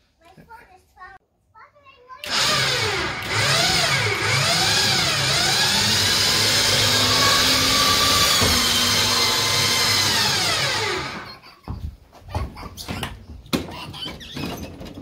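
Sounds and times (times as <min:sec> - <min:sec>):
electric winch motor whining: 0:02.2 - 0:11.4.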